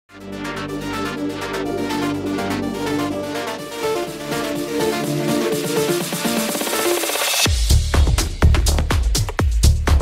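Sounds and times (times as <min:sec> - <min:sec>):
electronic synthesizer music: 0:00.1 - 0:07.5.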